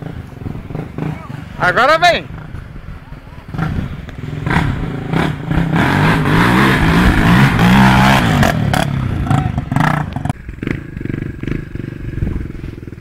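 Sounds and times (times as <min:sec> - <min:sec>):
dirt bike engine revving: 0:00.0 - 0:13.0
motorcycle engine idling: 0:08.7 - 0:13.0.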